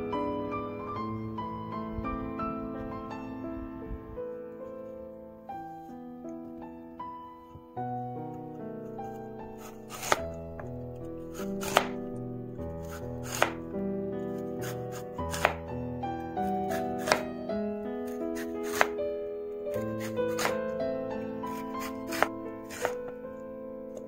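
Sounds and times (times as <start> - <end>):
background music: 0.0 - 24.0.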